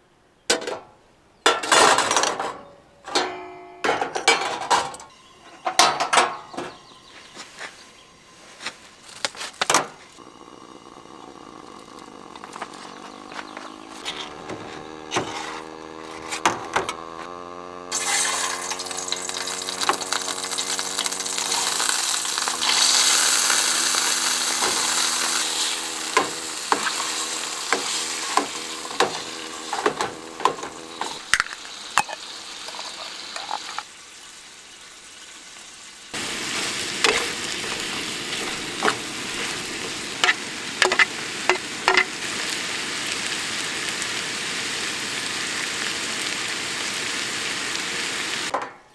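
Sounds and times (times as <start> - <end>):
food sizzling in a frying pan: 17.3 - 48.5.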